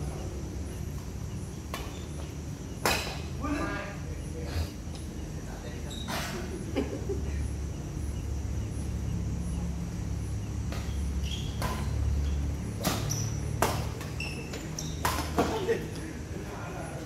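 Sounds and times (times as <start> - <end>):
rackets striking shuttlecock: 0.9 - 3.4, 10.6 - 16.1
high squeaks: 5.8 - 6.5, 10.8 - 15.3.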